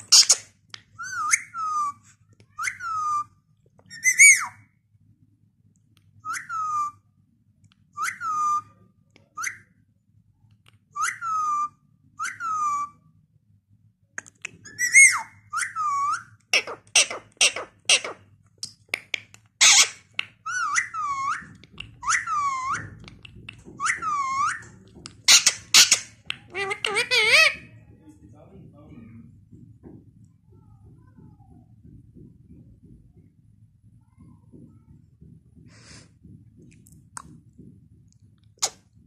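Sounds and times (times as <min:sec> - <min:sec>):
parakeet whistled calls: 0:03.9 - 0:04.6, 0:11.0 - 0:13.0, 0:14.7 - 0:18.2, 0:19.6 - 0:23.0, 0:23.8 - 0:27.6
harsh parrot squawk: 0:25.3 - 0:27.7.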